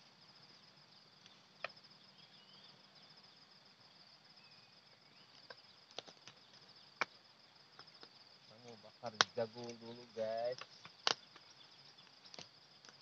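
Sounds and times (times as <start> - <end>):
faint bird chirps: 0.0 - 7.2, 7.9 - 12.8
pulsing insect trill: 0.0 - 13.0.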